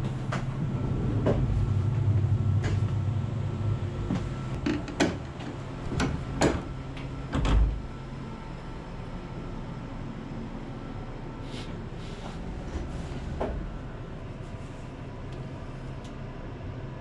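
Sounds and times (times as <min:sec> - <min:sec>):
train low hum: 0:00.0 - 0:17.0.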